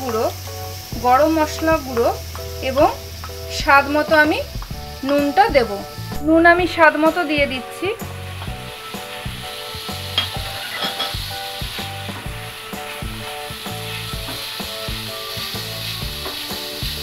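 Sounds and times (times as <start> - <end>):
chicken sizzling in oil: 0.0 - 17.0
wooden spatula scraping pan: 10.2 - 11.3.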